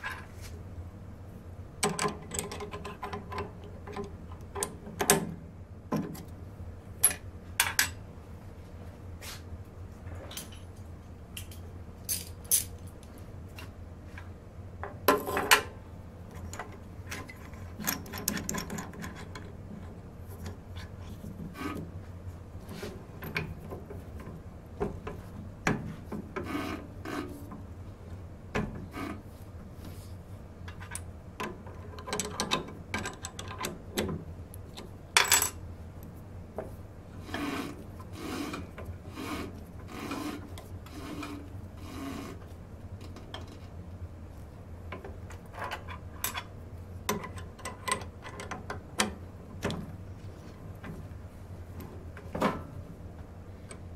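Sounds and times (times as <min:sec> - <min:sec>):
steady low hum: 0:00.0 - 0:53.9
metallic clicks and clanks: 0:01.8 - 0:05.3, 0:30.7 - 0:35.6, 0:47.1 - 0:49.8.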